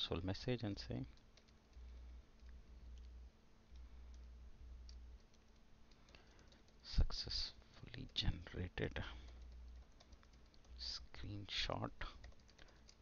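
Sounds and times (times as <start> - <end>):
computer keyboard clicks: 4.9 - 6.8, 9.2 - 10.8, 12.1 - 13.0.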